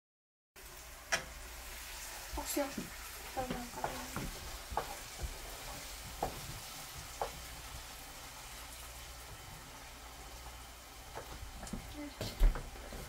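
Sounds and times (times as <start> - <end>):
food sizzling in a pot: 0.6 - 13.0
stirring knocks: 2.4 - 7.9, 11.1 - 13.0.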